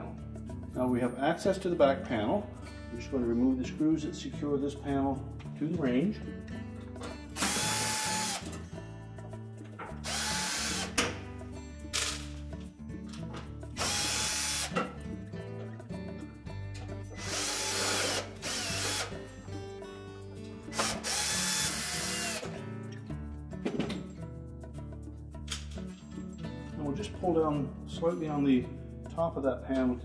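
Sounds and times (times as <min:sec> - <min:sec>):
cordless drill spinning: 0:07.4 - 0:08.6, 0:10.0 - 0:11.0, 0:13.8 - 0:14.8, 0:17.2 - 0:19.2, 0:20.7 - 0:22.5.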